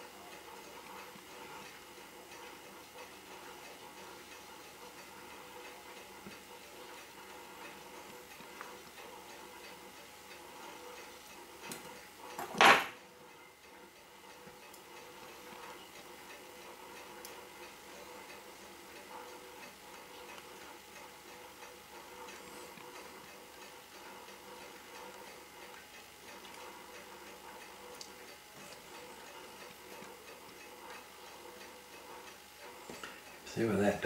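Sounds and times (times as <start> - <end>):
watch ticking faintly: 13.2 - 34.0.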